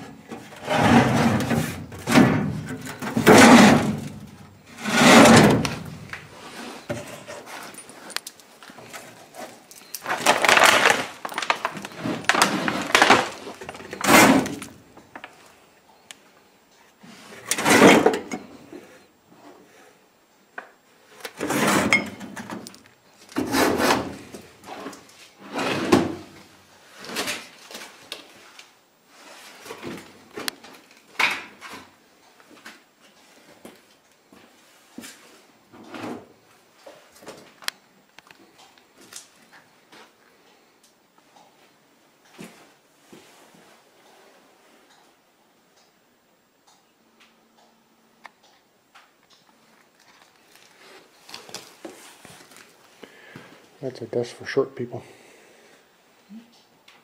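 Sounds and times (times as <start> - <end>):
metal drawers sliding and clunking: 0.0 - 6.0, 17.4 - 18.5.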